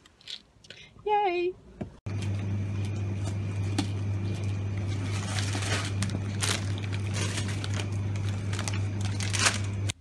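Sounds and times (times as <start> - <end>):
steady low hum: 0.8 - 10.0
plastic packaging crinkling: 4.3 - 10.0.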